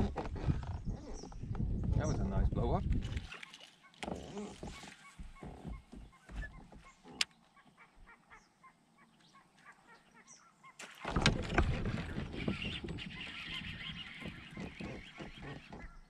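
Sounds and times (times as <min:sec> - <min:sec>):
fish splashing: 0:03.0 - 0:05.4, 0:10.8 - 0:15.8.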